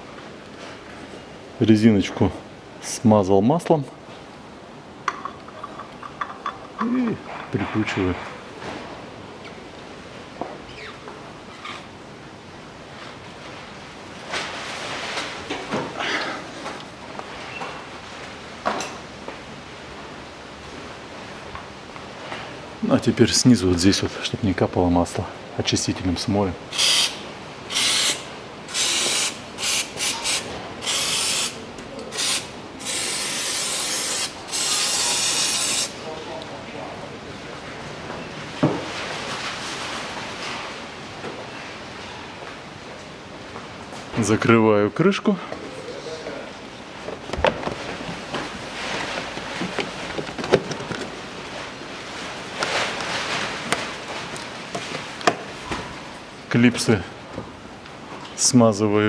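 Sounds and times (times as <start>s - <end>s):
aerosol spray hissing bursts: 26.8s - 36.0s
plastic scraping and rustling: 47.1s - 55.6s.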